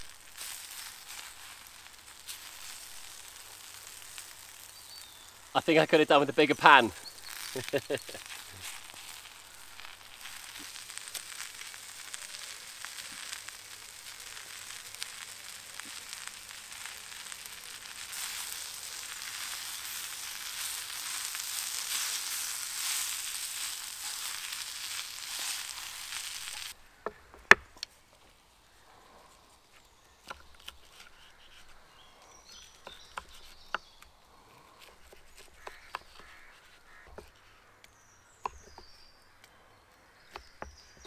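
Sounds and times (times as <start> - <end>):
vegetables sizzling in frying pan: 0.0 - 26.8.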